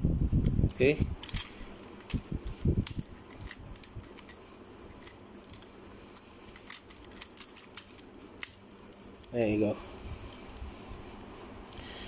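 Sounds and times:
plastic toy parts clicking: 0:06.5 - 0:08.6.

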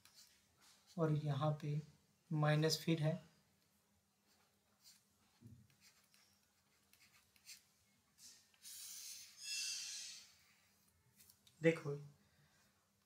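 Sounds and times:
stylus scratching on pen tablet: 0:04.2 - 0:10.8.

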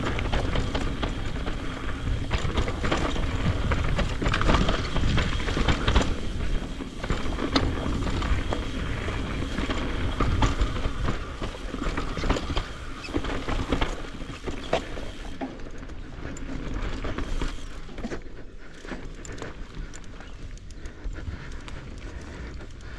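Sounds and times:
wind rumble on microphone: 0:00.0 - 0:15.2
bike clicks and rattles: 0:00.0 - 0:22.9
bike tyres rolling over dirt: 0:00.0 - 0:22.9.

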